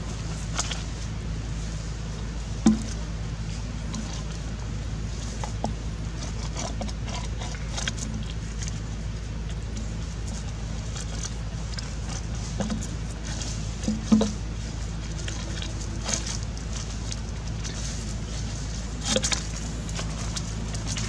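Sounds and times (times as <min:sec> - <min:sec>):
steady low hum: 0:00.0 - 0:21.0
dry leaves rustling: 0:08.4 - 0:21.0.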